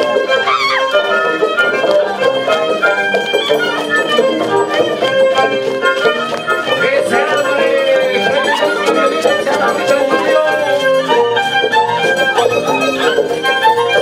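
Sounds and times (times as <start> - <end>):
violin melody: 0.0 - 14.0.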